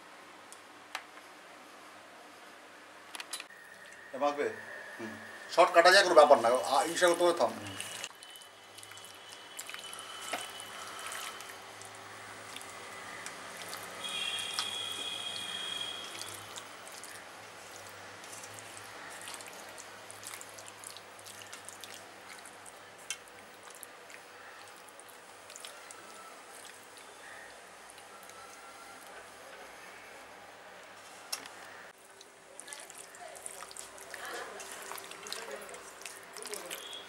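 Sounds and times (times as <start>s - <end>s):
hand kneading raw chicken: 16.1s - 29.1s, 32.6s - 37.0s.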